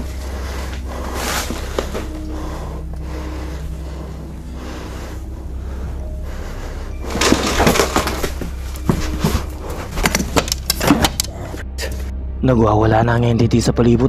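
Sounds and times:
steady low hum: 0:00.0 - 0:12.4
sharp knocks and cracking: 0:10.0 - 0:11.4.

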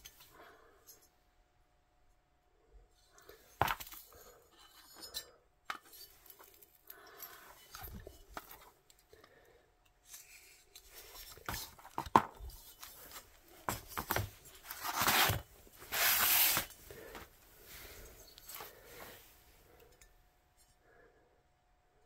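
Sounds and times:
metal scraping on cardboard: 0:13.0 - 0:16.8.

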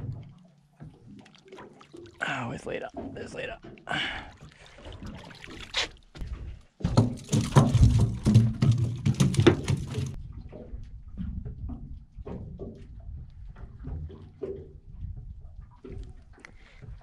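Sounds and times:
fish flapping on deck: 0:06.8 - 0:10.2.

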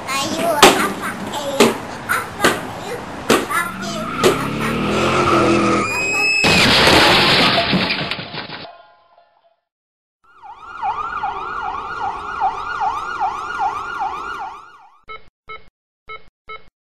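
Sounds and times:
electronic siren sweeping: 0:10.3 - 0:15.0.

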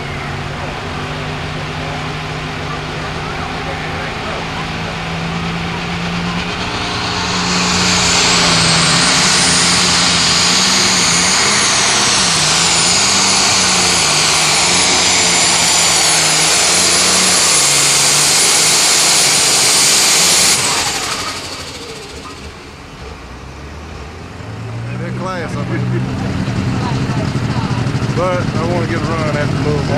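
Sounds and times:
diesel tractor engine under load: 0:00.0 - 0:29.9
turbocharger whistle: 0:02.6 - 0:22.8.

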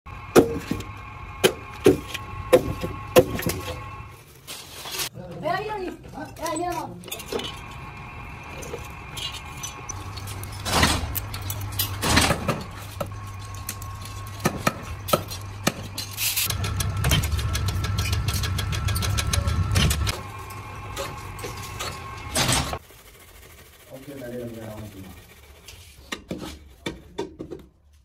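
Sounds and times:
machine humming: 0:00.1 - 0:04.2, 0:07.1 - 0:25.4.

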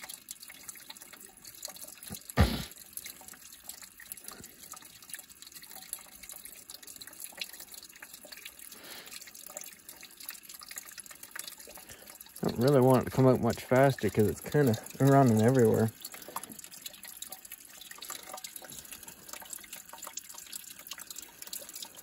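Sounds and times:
liquid trickling into bucket: 0:00.0 - 0:22.0
sharp thump: 0:02.4 - 0:02.7.

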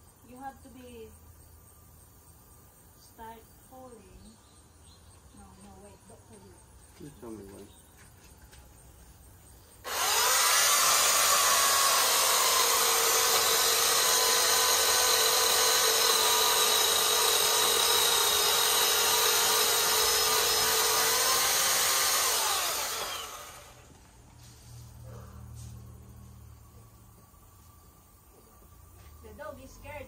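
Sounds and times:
battery chainsaw cutting wood: 0:09.8 - 0:24.0.

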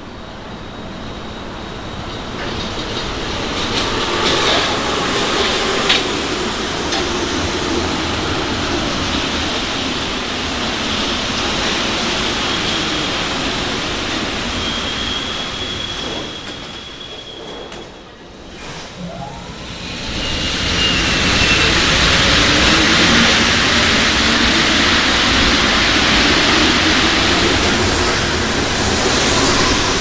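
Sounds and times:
train braking to a stop: 0:00.0 - 0:30.0
steady high tone: 0:18.9 - 0:25.0.

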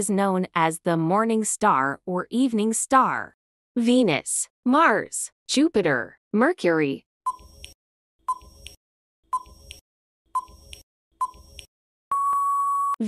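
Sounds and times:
timer ticks: 0:07.3 - 0:09.8, 0:10.4 - 0:11.7
long steady beep: 0:12.1 - 0:13.0.

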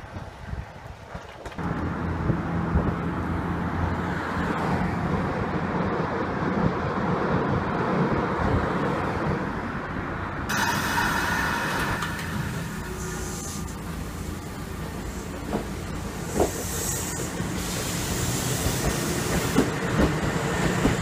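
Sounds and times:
electric train rumble and hum: 0:00.0 - 0:21.0
train hiss and whine: 0:10.5 - 0:21.0.

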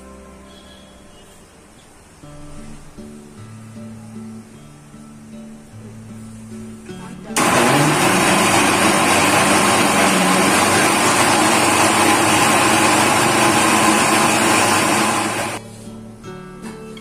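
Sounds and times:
mixer grinder running: 0:07.4 - 0:15.6.

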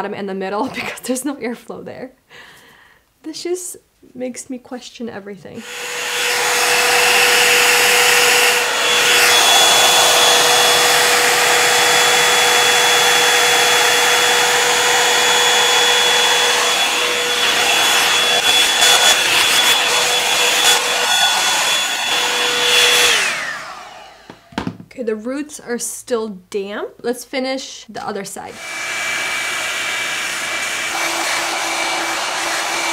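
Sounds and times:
motor spinning down: 0:05.6 - 0:24.5
hair dryer running: 0:05.6 - 0:24.8, 0:28.5 - 0:32.9.

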